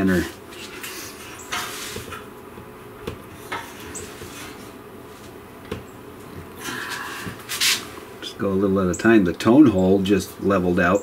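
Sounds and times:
tool handling and scraping: 0.0s - 2.3s, 3.3s - 5.4s, 6.6s - 8.0s
low steady hum: 0.0s - 11.0s.

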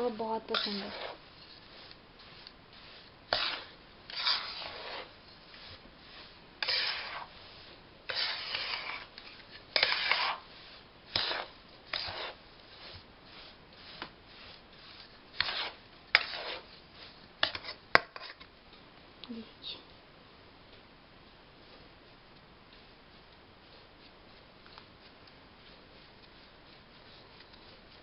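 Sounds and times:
spatula scraping in metal pan: 0.0s - 18.4s.

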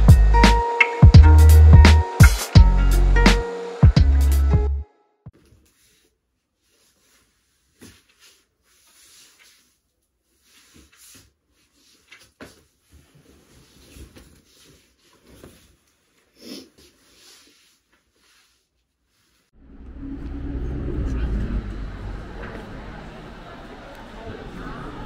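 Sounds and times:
clothing rustling: 5.3s - 19.6s.

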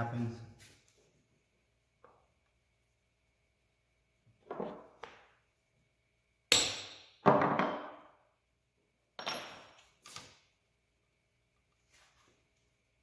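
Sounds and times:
hammer striking metal punch: 6.5s - 7.0s.

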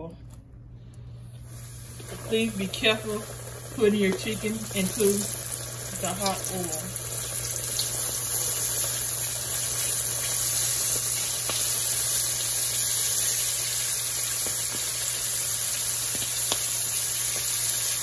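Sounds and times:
chicken deep-frying in oil: 1.4s - 18.0s.

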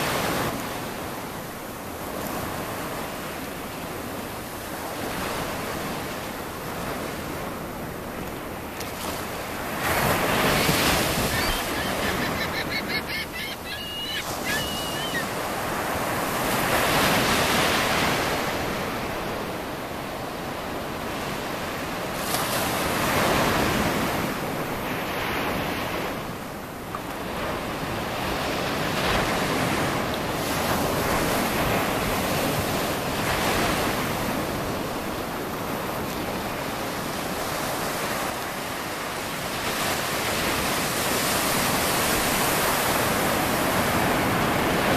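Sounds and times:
ocean surf breaking: 0.0s - 44.9s
faint high-pitched call: 11.2s - 15.4s.

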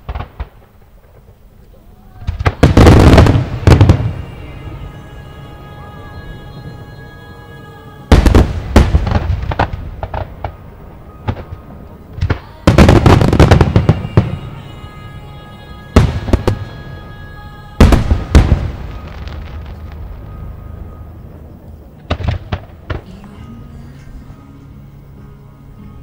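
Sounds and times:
fireworks booming and crackling: 0.0s - 6.9s, 8.1s - 15.0s, 15.8s - 23.5s.

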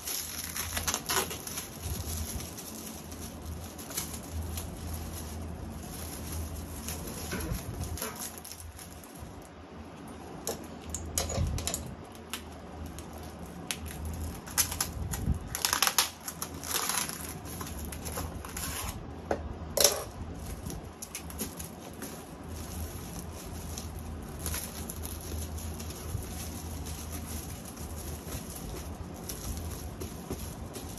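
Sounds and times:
scissors cutting plastic: 0.0s - 5.3s, 6.1s - 9.0s, 10.4s - 19.0s
plastic film crinkling: 0.0s - 30.9s.

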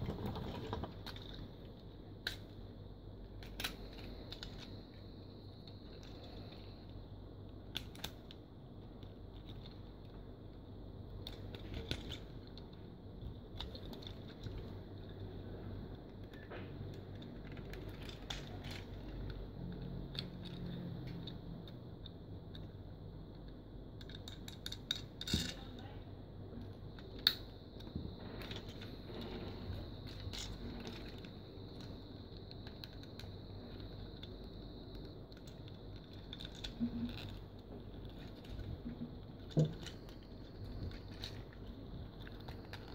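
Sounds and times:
plastic toy parts clicking: 2.2s - 2.6s, 3.4s - 4.7s, 7.5s - 8.4s, 11.2s - 15.2s, 16.0s - 22.8s, 23.4s - 25.9s, 26.6s - 28.9s, 29.7s - 42.9s.

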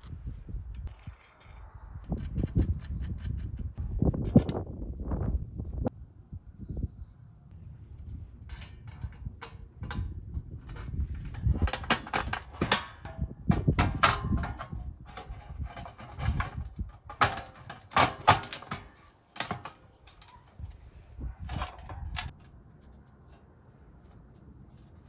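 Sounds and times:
metal parts clinking: 0.8s - 3.7s.

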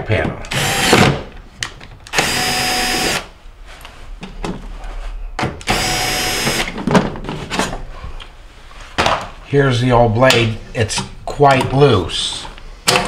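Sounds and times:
cordless drill running: 0.5s - 1.0s, 2.1s - 3.3s, 5.7s - 6.7s.

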